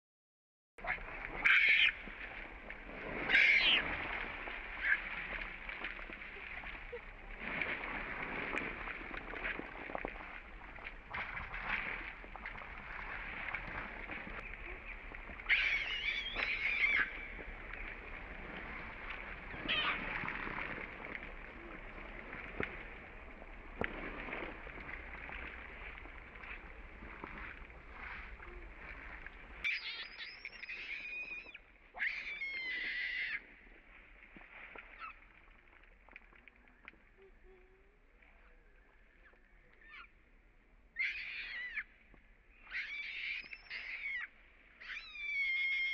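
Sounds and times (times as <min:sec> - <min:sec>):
baby monkey screeching: 0:15.5 - 0:17.1, 0:41.0 - 0:41.8, 0:42.7 - 0:44.2.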